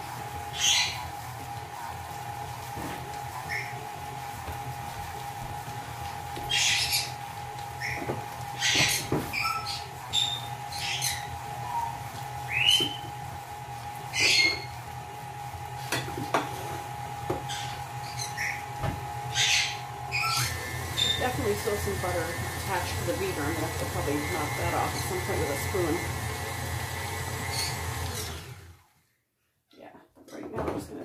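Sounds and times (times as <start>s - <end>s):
steady electric hum: 0.0s - 28.9s
birds squawking and chirping: 0.4s - 1.2s, 3.4s - 3.9s, 6.4s - 13.2s, 14.0s - 14.8s, 17.3s - 22.2s, 27.4s - 28.2s.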